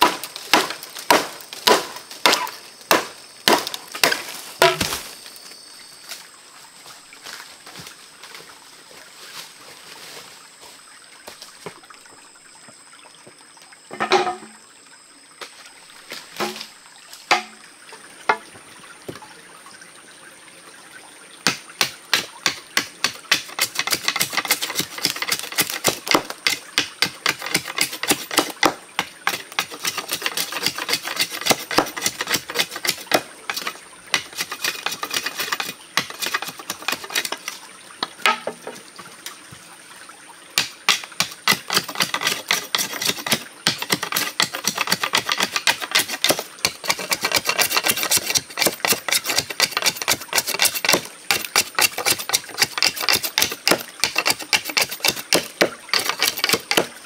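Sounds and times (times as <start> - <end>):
knife scraping bamboo pole: 0.0 - 5.0, 22.4 - 37.6, 40.9 - 56.9.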